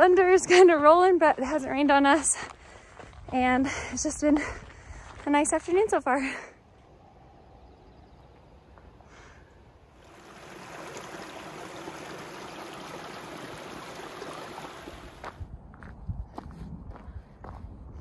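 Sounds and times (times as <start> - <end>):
creek running over rocks: 9.8 - 15.4.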